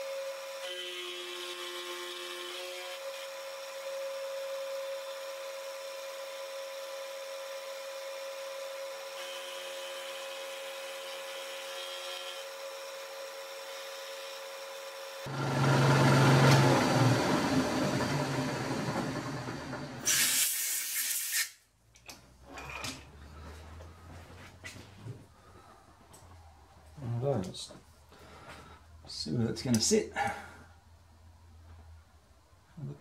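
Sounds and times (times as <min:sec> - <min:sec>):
metal cutting grinding noise: 0:15.2 - 0:20.2.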